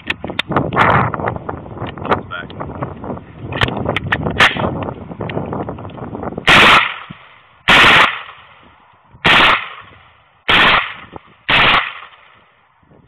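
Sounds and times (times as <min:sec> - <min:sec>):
rifle shots: 0:04.4 - 0:04.7, 0:06.5 - 0:08.5, 0:09.2 - 0:12.4.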